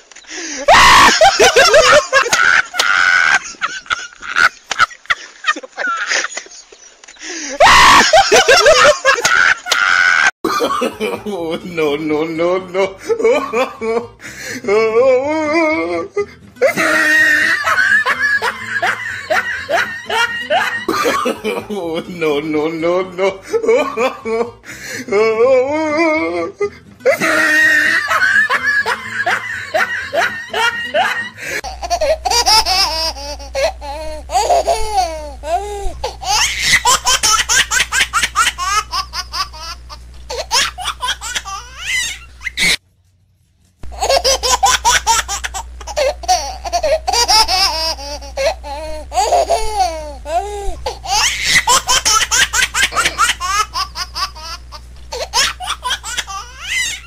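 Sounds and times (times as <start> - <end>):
baby laughing and giggling: 27.1 - 42.8, 43.9 - 57.0.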